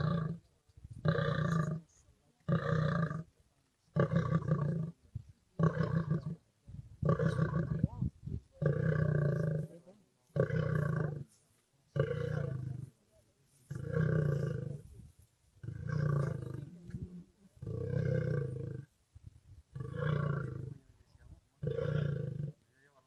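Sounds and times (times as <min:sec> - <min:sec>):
lion roaring: 0:01.0 - 0:01.8, 0:15.6 - 0:18.9, 0:19.7 - 0:20.8.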